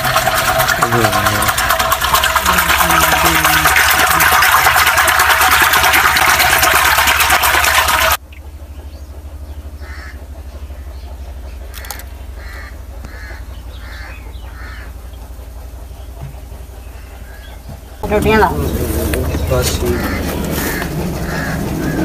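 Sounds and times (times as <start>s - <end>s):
steady low hum: 0.0s - 22.0s
bird calling: 8.2s - 22.0s.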